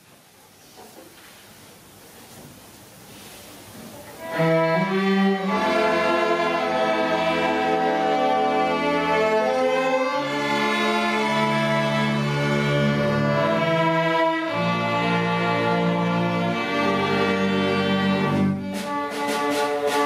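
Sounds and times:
string orchestra bowed chords: 4.2s - 20.0s.

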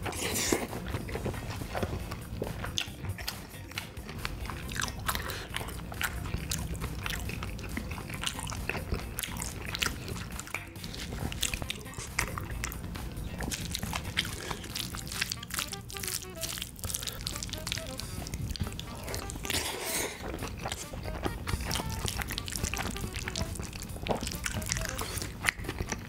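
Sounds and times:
close chewing mouth sounds: 0.0s - 26.0s
spoon scraping a bowl: 18.8s - 22.0s.

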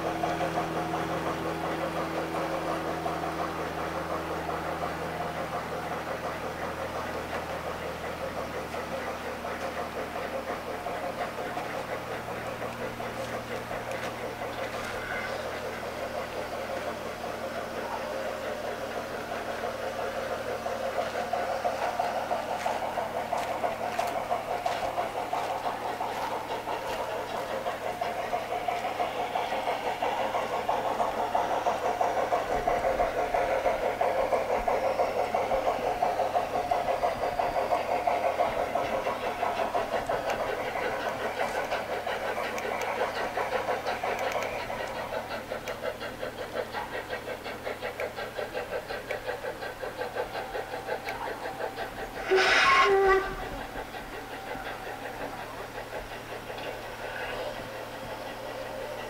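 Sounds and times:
model train running: 0.0s - 59.0s
sharp clicks: 44.0s - 45.0s.

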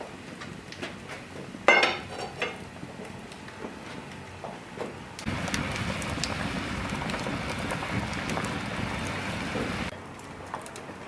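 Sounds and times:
stew bubbling in a pot: 5.2s - 11.0s.

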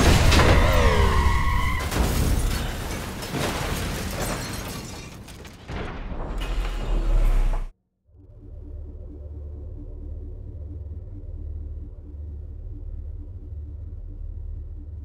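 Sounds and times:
debris cracking: 0.0s - 7.0s.

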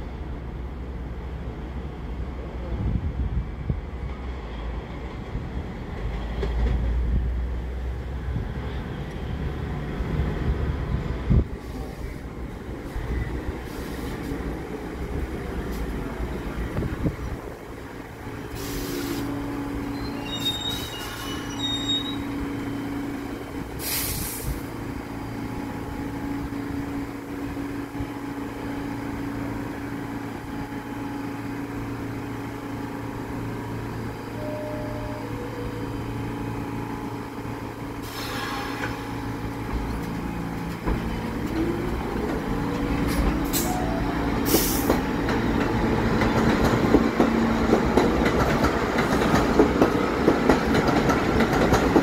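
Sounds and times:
subway train equipment hum: 0.0s - 52.0s
short air hisses: 13.6s - 14.3s, 18.5s - 19.3s, 23.8s - 24.7s, 38.0s - 39.0s, 44.4s - 45.0s.

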